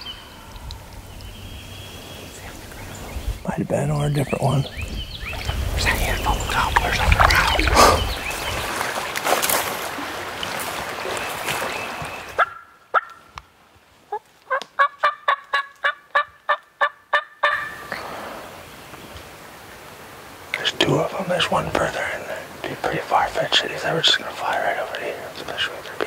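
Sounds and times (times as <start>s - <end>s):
steady outdoor hiss: 0.0s - 26.0s
turkey calls: 11.0s - 13.4s, 14.1s - 18.4s.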